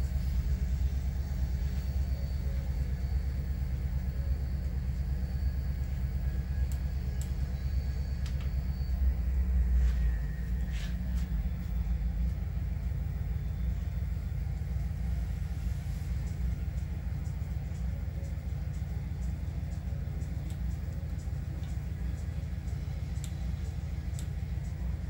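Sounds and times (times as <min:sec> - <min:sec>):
deep diesel engine rumble: 0:00.0 - 0:25.0
faint clicks: 0:06.6 - 0:09.0, 0:19.2 - 0:24.8.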